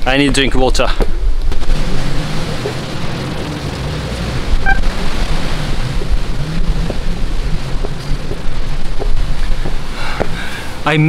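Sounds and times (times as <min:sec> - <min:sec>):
wind blowing across microphone: 0:04.3 - 0:11.0.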